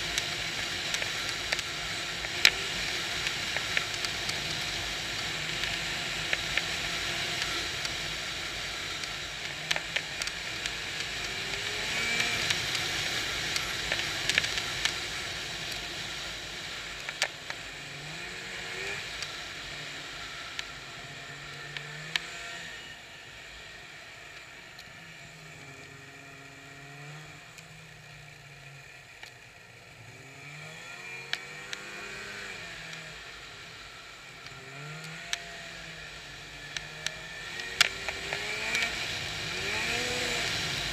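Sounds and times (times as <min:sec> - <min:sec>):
snowmobile engine running: 0:00.0 - 0:23.0, 0:29.9 - 0:40.9
steady rushing noise: 0:35.3 - 0:40.9.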